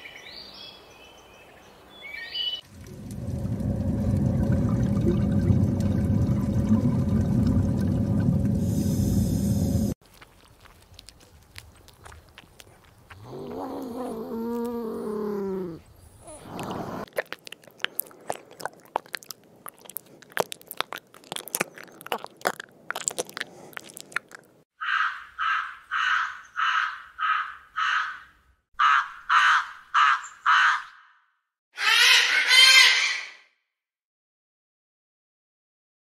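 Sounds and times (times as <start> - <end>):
snail crunching apple: 10.0 - 15.0, 16.6 - 24.6
crow cawing: 24.8 - 31.1.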